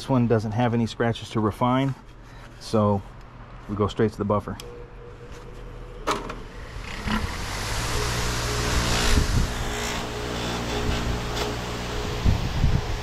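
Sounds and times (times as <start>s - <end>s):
buffing motor humming: 6.4s - 13.0s.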